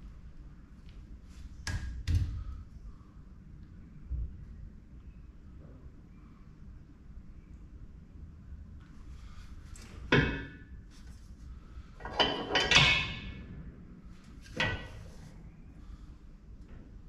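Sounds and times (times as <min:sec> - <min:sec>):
ringing metallic clanks: 0:12.0 - 0:13.4, 0:14.5 - 0:15.1.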